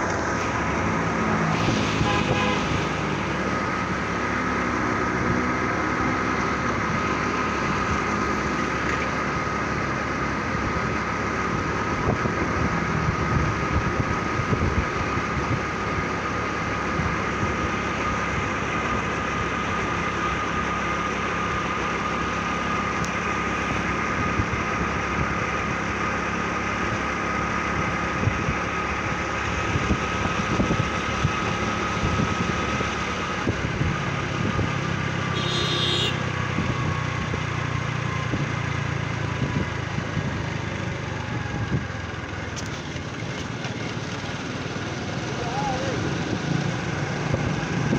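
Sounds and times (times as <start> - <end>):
high whine: 0.0 - 9.6
wind noise: 11.5 - 16.1, 27.7 - 35.0
motorcycle engine running: 22.4 - 47.9.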